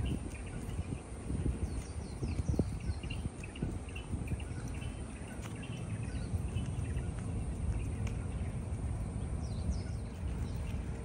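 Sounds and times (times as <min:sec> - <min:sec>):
downward-sweeping bird calls: 0:00.0 - 0:08.6
bird chirps: 0:00.0 - 0:11.0
uneven low rumble: 0:00.0 - 0:11.0.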